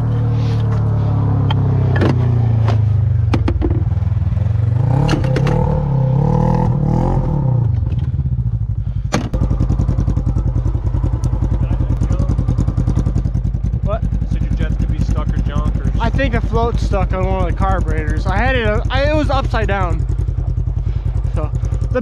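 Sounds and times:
snowmobile engine revving: 4.6 - 7.7, 9.3 - 22.0
engine idling: 7.6 - 22.0.

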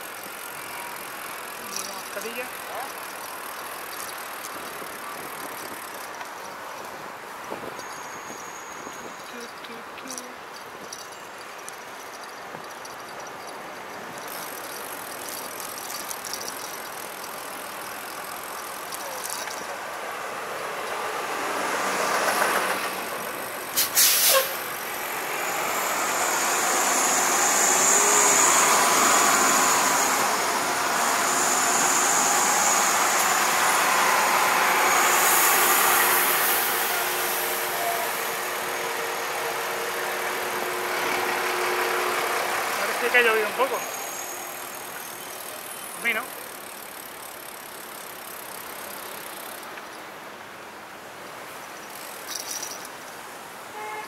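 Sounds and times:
vehicles passing: 0.0 - 54.0
high hiss: 11.8 - 50.4.

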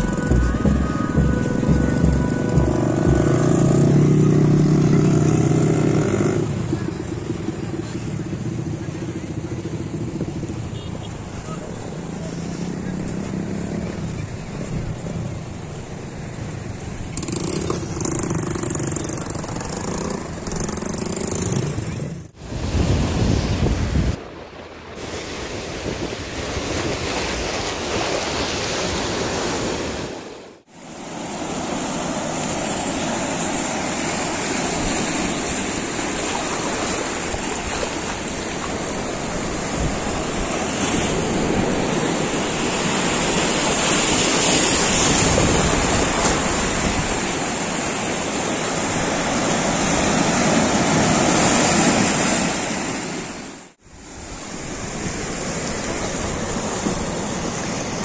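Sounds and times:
sea waves breaking on rocky shore: 22.4 - 58.0.

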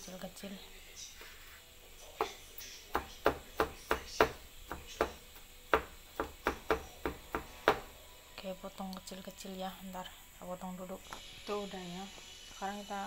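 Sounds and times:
knife chopping on wooden board: 2.2 - 8.0.

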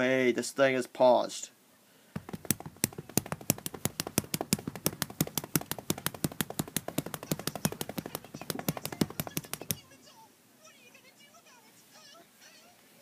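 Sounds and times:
rapid sharp clicking: 2.2 - 9.8.

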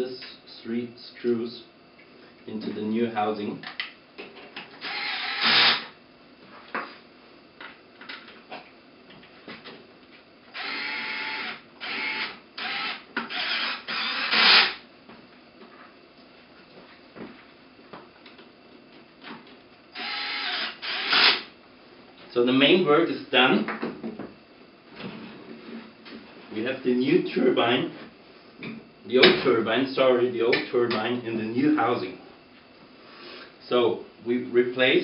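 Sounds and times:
cordless drill driving screws: 4.8 - 5.9, 10.6 - 14.8, 20.0 - 21.4.

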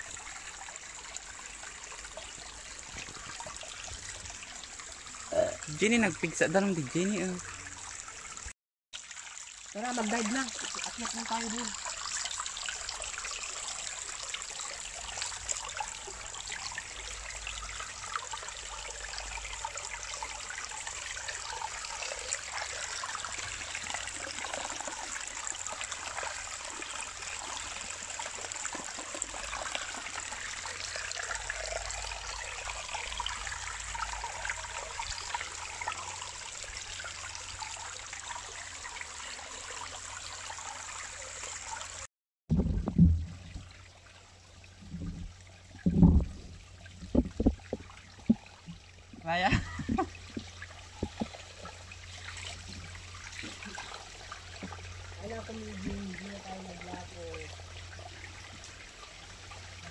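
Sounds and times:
water trickling over rock: 0.0 - 59.9
loud thump: 42.5 - 43.7.

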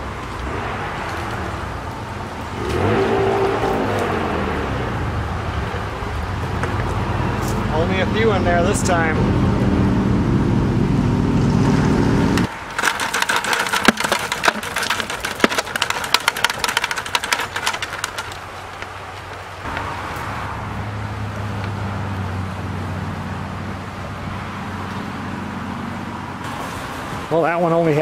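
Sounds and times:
crayfish and wire mesh clattering: 12.5 - 19.6.

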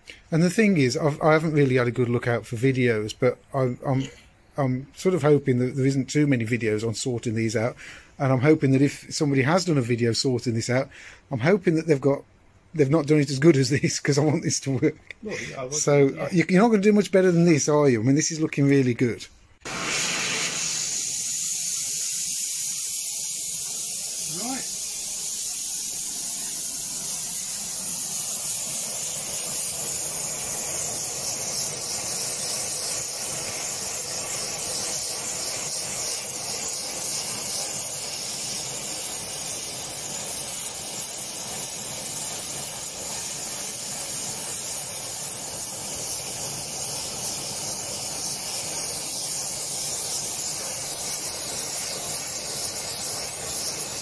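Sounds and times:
gas torch flame hissing: 0.0 - 1.8, 19.6 - 54.0.

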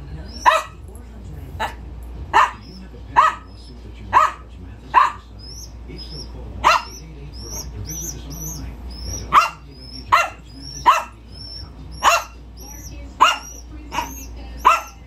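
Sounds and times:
young pigeon cheeping: 0.2 - 0.6, 5.4 - 15.0
small dog barking sharply: 2.4 - 2.6, 4.1 - 4.4.

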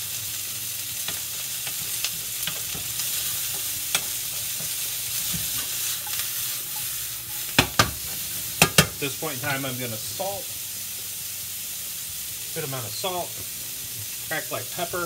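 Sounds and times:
broccoli sizzling in a skillet: 0.0 - 15.0
pan and spoon clicks: 8.6 - 9.0.

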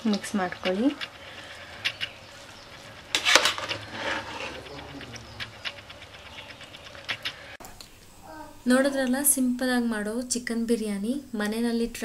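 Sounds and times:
metal ladle scraping pot: 0.2 - 7.6.

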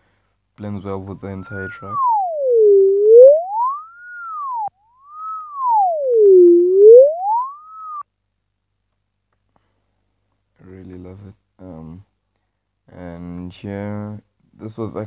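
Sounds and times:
synth tone swooping: 1.5 - 8.0.

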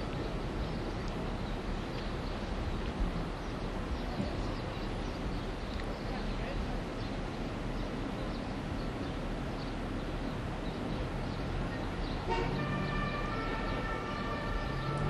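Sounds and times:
horn sounding a held chord: 12.3 - 15.0.

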